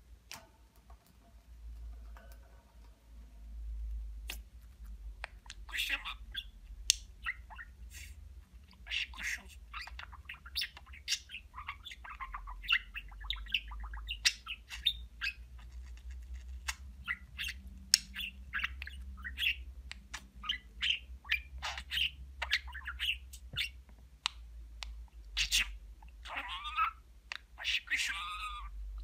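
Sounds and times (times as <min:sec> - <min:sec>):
budgerigar chattering: 0:05.5 - 0:06.6, 0:08.7 - 0:15.5, 0:17.0 - 0:23.8, 0:25.4 - 0:28.8.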